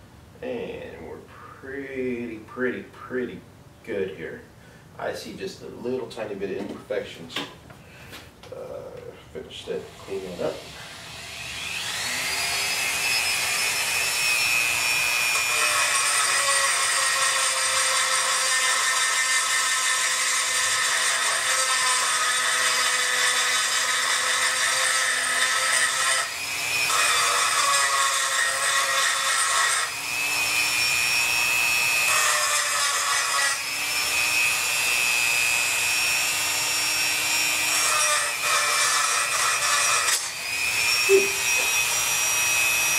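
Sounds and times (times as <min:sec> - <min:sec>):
rotary tool grinding metal: 0:09.9 - 0:42.9.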